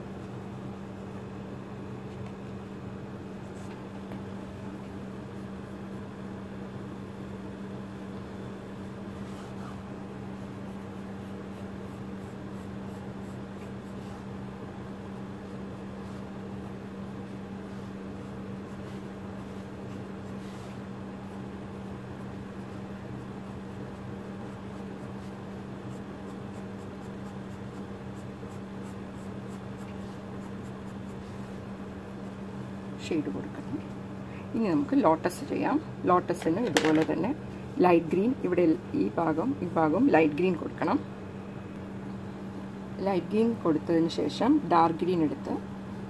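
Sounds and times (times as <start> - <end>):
low steady hum: 0.0 - 46.0
pencil scratching on paper: 23.2 - 32.3.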